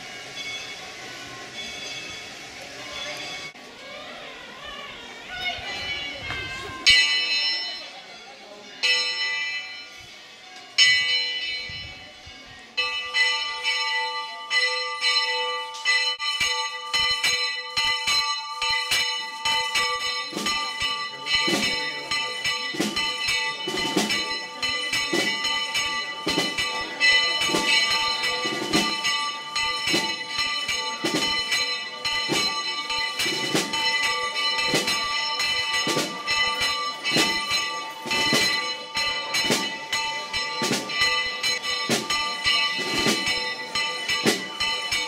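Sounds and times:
church bells ringing fast: 6.8s - 10.0s, 10.8s - 45.0s
deep bell stroke: 12.8s - 45.0s.

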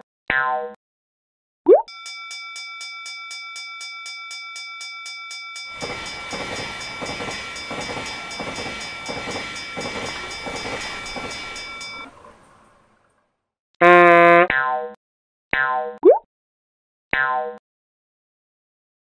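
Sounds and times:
railroad crossing bell ringing: 1.9s - 12.8s
train rumble and wheel clatter: 5.7s - 13.0s.

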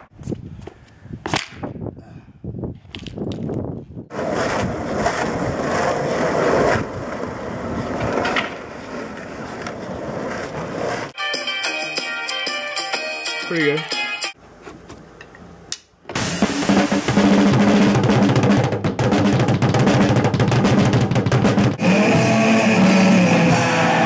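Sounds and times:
skateboard wheels rolling on asphalt: 2.7s - 11.2s.

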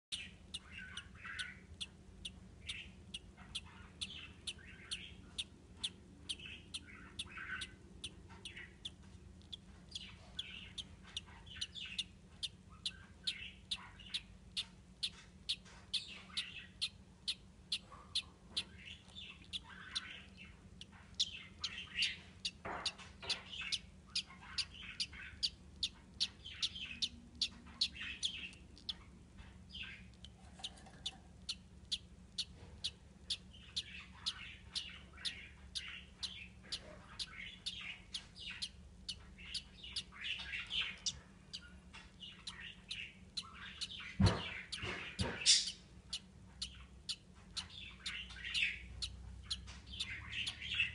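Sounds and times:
budgerigar warbling calls: 0.1s - 29.1s, 29.7s - 50.9s
budgerigars chirping: 0.1s - 50.9s.

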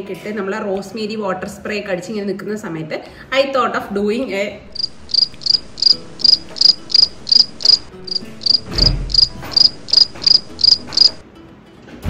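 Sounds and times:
cricket chirping: 4.7s - 11.2s.

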